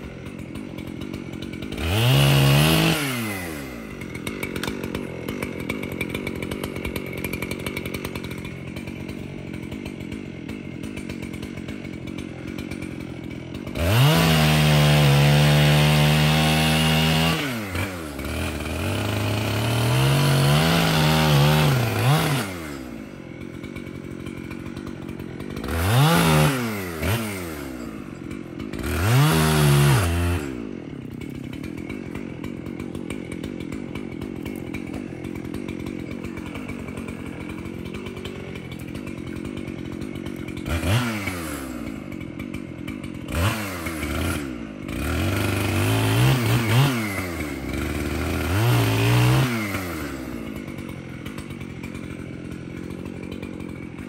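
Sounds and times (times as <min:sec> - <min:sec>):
chainsaw revving and idling: 0:00.0 - 0:54.0.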